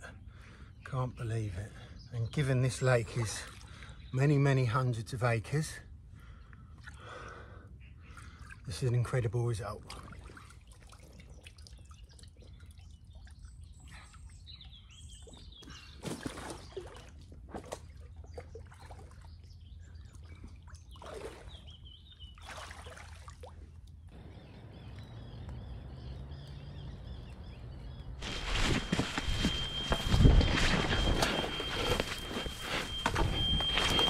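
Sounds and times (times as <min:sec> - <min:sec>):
birds singing: 0:00.0 - 0:09.9, 0:11.0 - 0:23.0, 0:23.7 - 0:34.0
water sloshing and splashing: 0:09.7 - 0:14.4, 0:16.0 - 0:24.1, 0:28.2 - 0:34.0
faint bird chirps: 0:24.1 - 0:34.0
steady low hum: 0:24.1 - 0:34.0.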